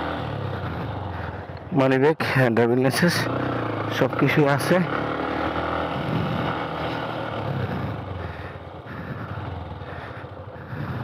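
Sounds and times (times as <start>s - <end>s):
motorcycle engine at low revs: 0.0s - 11.0s.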